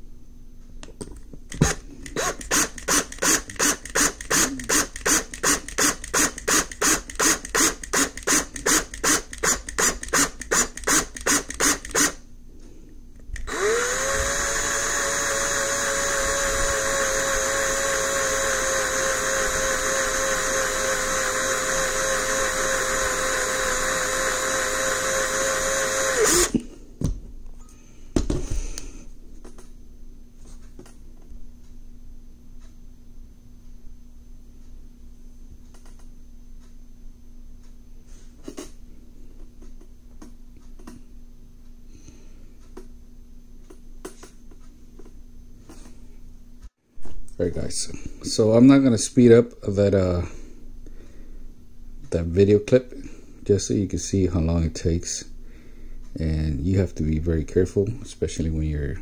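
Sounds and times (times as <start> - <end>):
cordless drill drilling metal: 1.5 - 12.2, 13.4 - 26.6.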